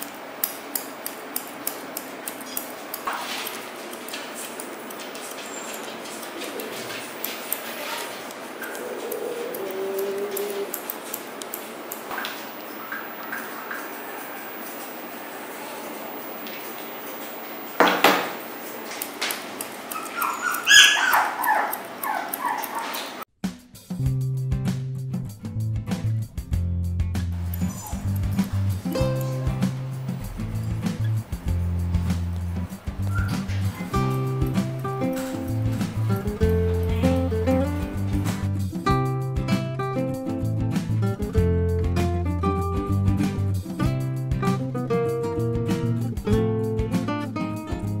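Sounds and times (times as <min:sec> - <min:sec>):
scissors snipping: 0:00.0 - 0:12.8, 0:18.6 - 0:23.1
dog whimpering and yipping: 0:08.5 - 0:10.9, 0:19.9 - 0:23.2, 0:27.6 - 0:28.2, 0:33.0 - 0:34.1.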